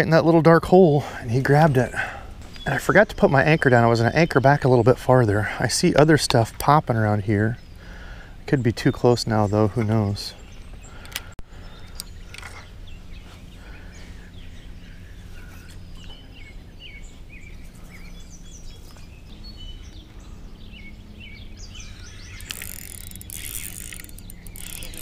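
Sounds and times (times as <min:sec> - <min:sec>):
birds singing and chirping: 0:00.0 - 0:25.0
low background hum: 0:00.0 - 0:25.0
sharp clicks: 0:22.4 - 0:25.0.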